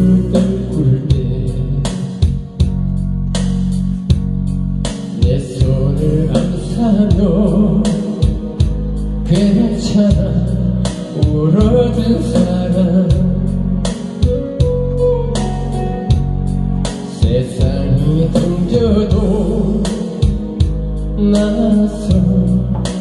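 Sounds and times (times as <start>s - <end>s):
man singing into microphone: 0.0s - 2.4s, 5.1s - 14.6s, 17.1s - 23.0s
backing track with guitar and drums: 0.0s - 23.0s.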